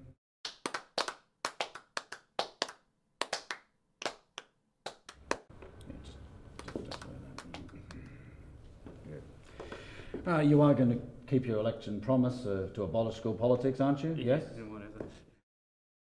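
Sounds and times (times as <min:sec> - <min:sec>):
faint room hiss: 0:05.5 - 0:15.4.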